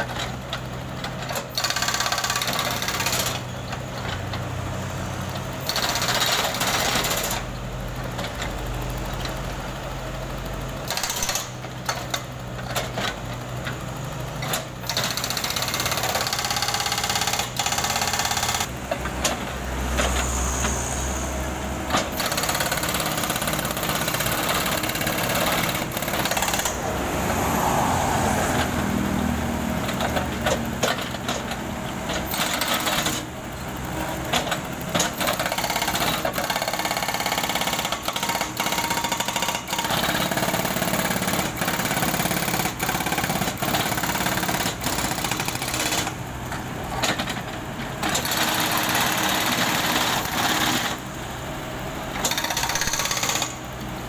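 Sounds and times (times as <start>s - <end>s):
excavator engine running: 0.0s - 54.0s
hydraulic breaker hammering asphalt: 14.4s - 18.7s, 21.9s - 26.8s, 34.3s - 46.2s, 46.9s - 51.0s, 52.2s - 53.6s.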